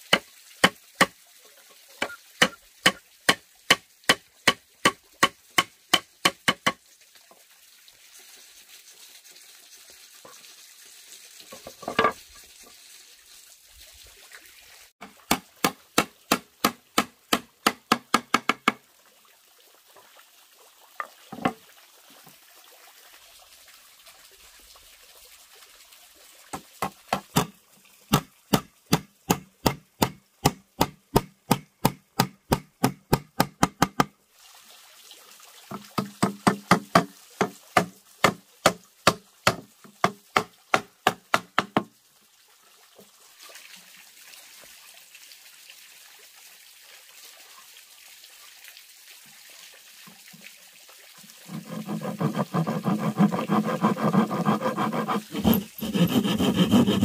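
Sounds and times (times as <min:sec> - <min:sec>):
faint fountain water splashing: 0:00.0 - 0:53.3
hammer driving nails into wood: 0:05.6 - 0:06.8, 0:28.9 - 0:34.1, 0:55.1 - 0:57.0.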